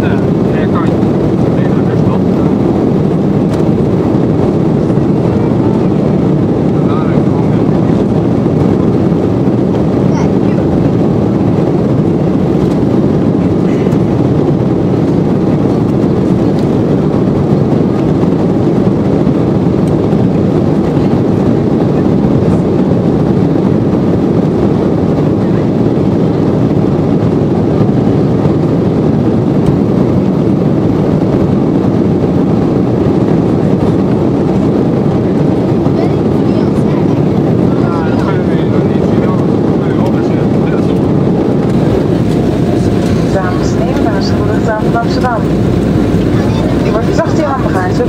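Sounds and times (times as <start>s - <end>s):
airliner cabin rushing noise: 32.4s - 48.0s.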